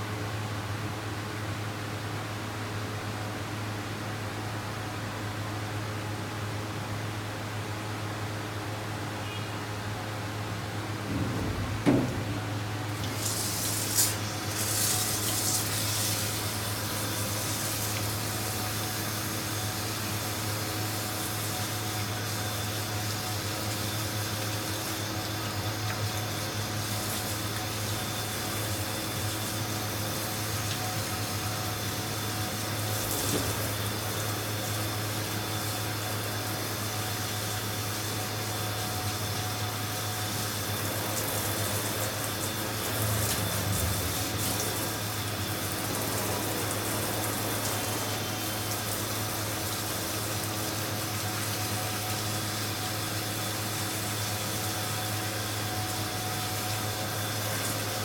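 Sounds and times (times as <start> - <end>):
water spraying from hose: 11.9 - 58.0.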